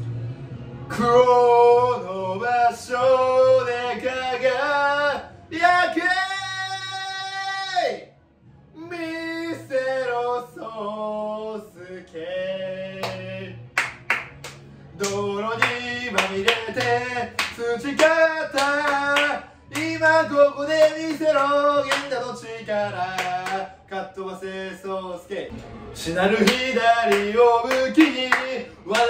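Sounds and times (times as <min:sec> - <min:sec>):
man singing cheer song: 0:00.9 - 0:08.1, 0:08.7 - 0:13.7, 0:14.9 - 0:29.0
sharp hand claps: 0:13.0 - 0:20.0, 0:20.8 - 0:22.2, 0:23.0 - 0:23.6, 0:26.4 - 0:29.0.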